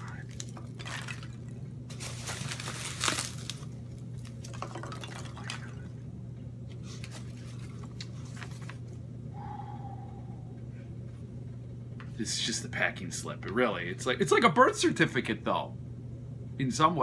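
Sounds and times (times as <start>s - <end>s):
steady low hum: 0.0s - 17.0s
paper sheet handled: 1.9s - 3.7s
packing peanuts rustling: 1.9s - 4.5s.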